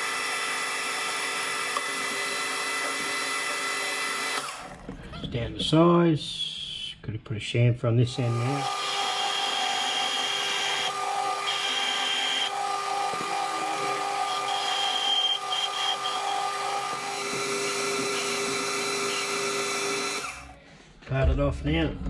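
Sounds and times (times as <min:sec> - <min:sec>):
metal lathe whining: 0:00.0 - 0:04.9, 0:08.1 - 0:20.6
high singing tone of cutting tool: 0:08.1 - 0:20.6.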